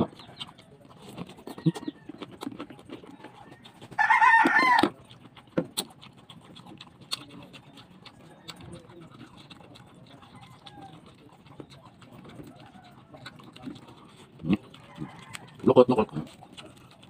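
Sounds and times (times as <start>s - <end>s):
chewing and mouth noises: 0.0s - 17.0s
rooster crowing: 3.3s - 4.9s, 10.4s - 11.0s, 12.5s - 13.2s, 14.8s - 15.7s.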